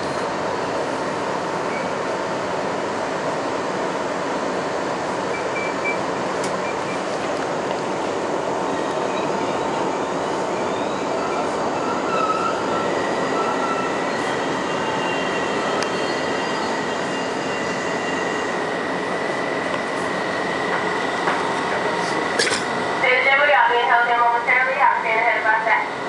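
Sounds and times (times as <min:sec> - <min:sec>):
subway wheel and rail noise: 0:00.0 - 0:26.0
high-pitched wheel squeal: 0:10.6 - 0:18.5.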